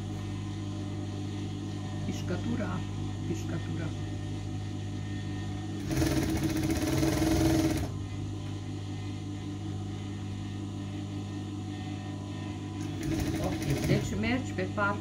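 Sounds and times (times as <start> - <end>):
sewing machine stitching: 5.8 - 7.9, 12.9 - 14.2.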